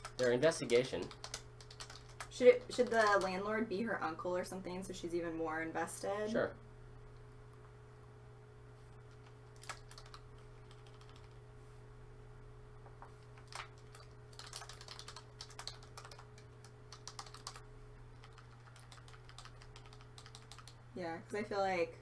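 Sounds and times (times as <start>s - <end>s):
computer keyboard typing: 0.0s - 3.4s, 9.1s - 11.4s, 13.3s - 20.8s
steady low hum: 0.0s - 22.0s.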